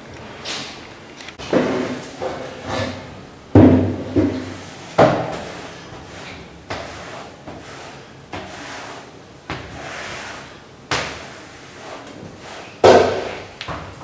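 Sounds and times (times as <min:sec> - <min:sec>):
echoing knocks and bangs: 0:03.5 - 0:04.4.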